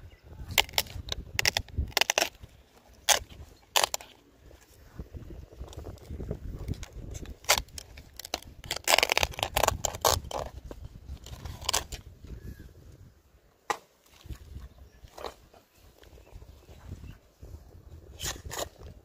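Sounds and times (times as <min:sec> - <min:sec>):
knife cutting palm crown: 0:00.5 - 0:04.2, 0:06.7 - 0:12.1, 0:18.2 - 0:19.0.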